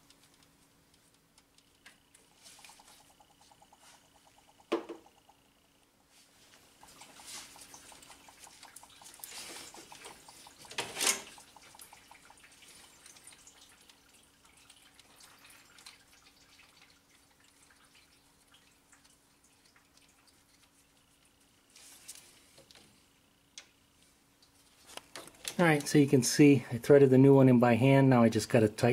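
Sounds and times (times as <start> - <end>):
liquid dripping into a pan: 1.6 - 5.7, 6.5 - 21.3.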